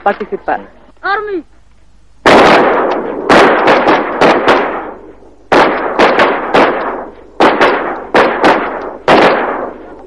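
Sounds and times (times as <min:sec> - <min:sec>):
rifle shots echoing: 0:02.2 - 0:10.0.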